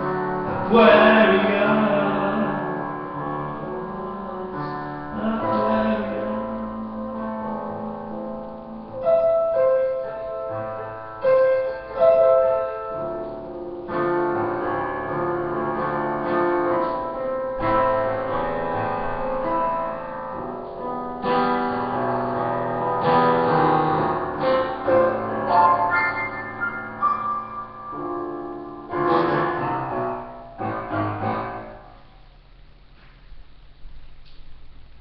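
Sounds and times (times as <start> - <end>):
slow piano chords: 0.0 - 35.0.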